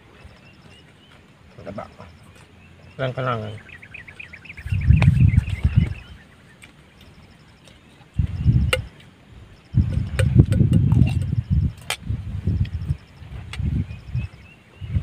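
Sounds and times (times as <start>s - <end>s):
insects chirping: 0.0s - 15.0s
wind rumbling on microphone: 2.9s - 6.4s, 7.0s - 15.0s.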